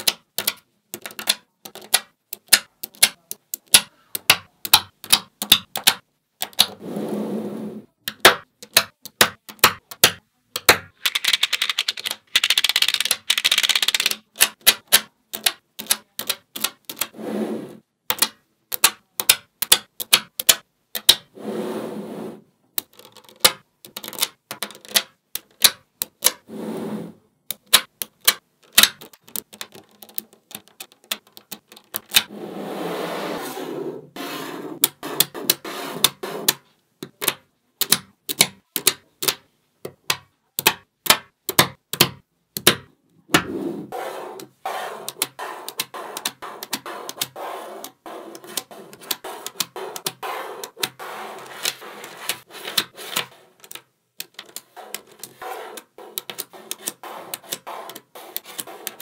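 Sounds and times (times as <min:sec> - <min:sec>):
magnetic balls clicking: 0:00.0 - 0:06.7, 0:08.0 - 0:17.1, 0:18.0 - 0:21.3, 0:22.7 - 0:26.4, 0:27.4 - 0:32.3, 0:44.3 - 0:59.0
balls rattling and rolling: 0:10.8 - 0:14.2.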